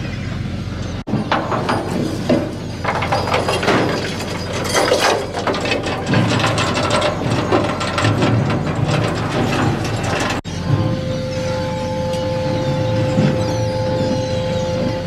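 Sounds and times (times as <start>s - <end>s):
low hum of boat machinery: 0.0s - 15.0s
rattle of chain and rigging: 1.8s - 10.5s.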